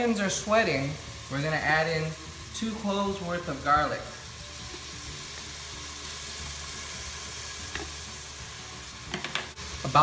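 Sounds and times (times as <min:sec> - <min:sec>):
onion sizzling in oil: 0:00.0 - 0:10.0.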